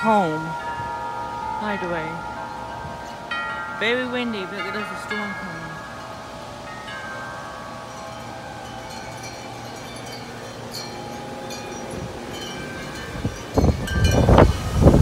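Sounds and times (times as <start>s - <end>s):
metal wind chime ringing: 0.0s - 15.0s
gusty wind rushing: 11.0s - 15.0s.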